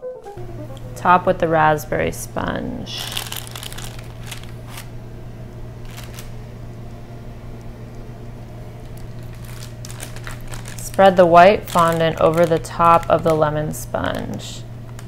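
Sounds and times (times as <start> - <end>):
low hum: 0.0 - 15.0
parchment paper rustling: 3.0 - 4.9, 5.8 - 6.3, 8.9 - 13.5.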